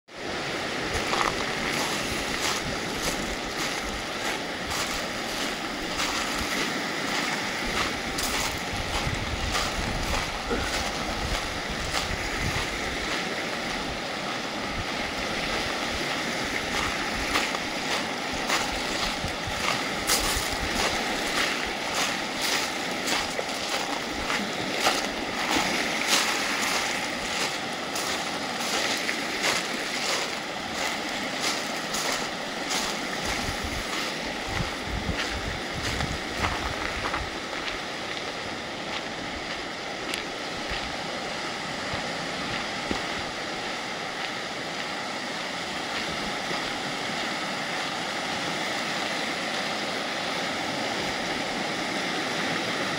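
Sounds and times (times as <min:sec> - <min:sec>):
waves breaking on pebble shore: 0:00.2 - 0:52.9
wind on microphone: 0:00.2 - 0:52.9
footsteps crunching on pebbles: 0:00.9 - 0:13.8, 0:16.2 - 0:41.0.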